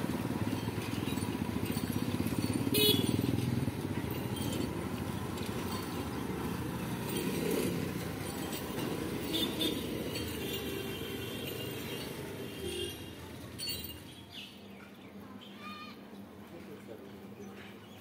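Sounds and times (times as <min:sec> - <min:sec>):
motorcycle engines passing: 0:00.0 - 0:14.2
metallic clinks and rattles: 0:00.3 - 0:12.4, 0:13.4 - 0:14.3.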